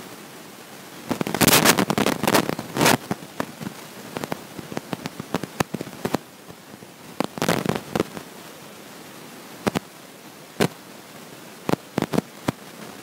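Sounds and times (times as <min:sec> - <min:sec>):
crackling clicks and pops: 0:01.0 - 0:08.3, 0:09.6 - 0:09.9, 0:10.6 - 0:10.8, 0:11.6 - 0:13.0.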